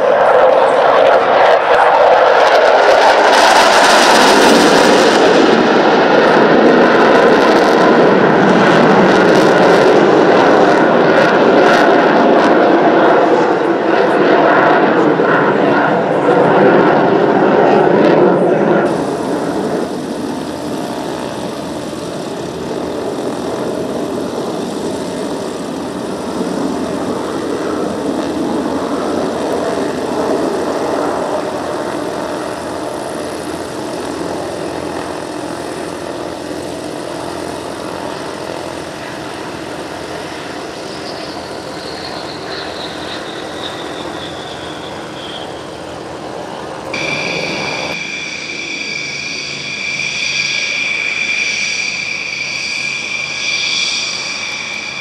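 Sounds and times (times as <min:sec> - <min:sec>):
high whine falling in pitch: 0:00.0 - 0:55.0
jet engine rumbling: 0:00.0 - 0:55.0
high several-pitched whine: 0:18.7 - 0:55.0.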